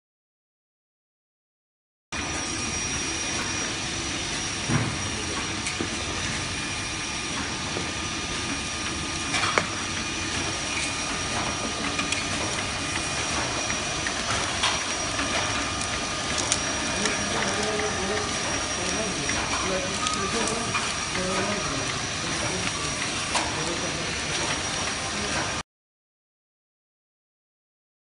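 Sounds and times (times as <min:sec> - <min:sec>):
machine whirring: 0:02.2 - 0:25.6
thin high steady tone: 0:10.8 - 0:25.4.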